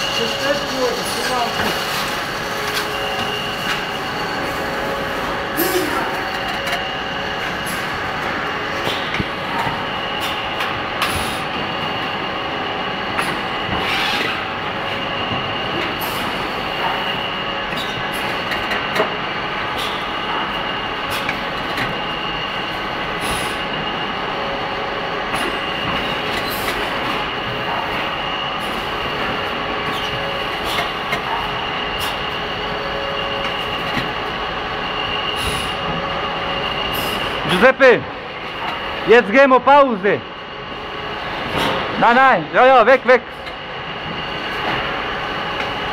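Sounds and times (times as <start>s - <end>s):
machinery whining: 0.0s - 45.9s.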